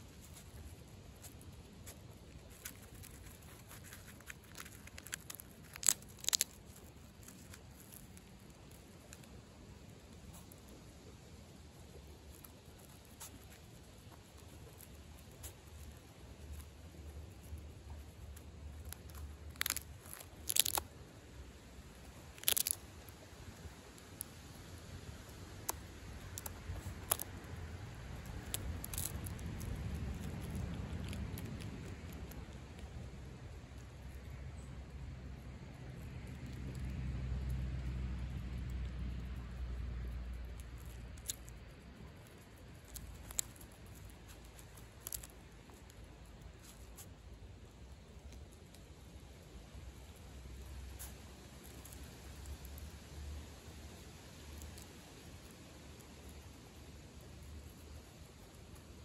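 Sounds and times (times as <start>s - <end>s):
skunk chewing peanuts: 0.0s - 59.0s
loud crunches: 1.2s - 8.8s, 18.8s - 20.9s, 22.3s - 22.9s, 28.2s - 32.9s.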